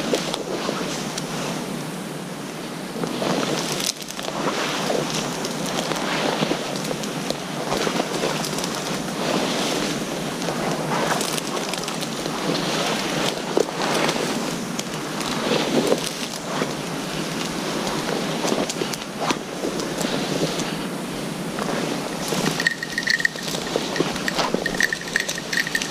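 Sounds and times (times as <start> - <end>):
dry ferns rustling and snapping: 6.7 - 9.0, 10.4 - 20.2.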